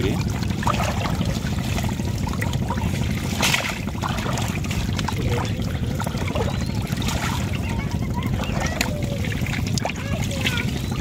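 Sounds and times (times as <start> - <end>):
wet fishing net rustling: 2.9 - 5.6.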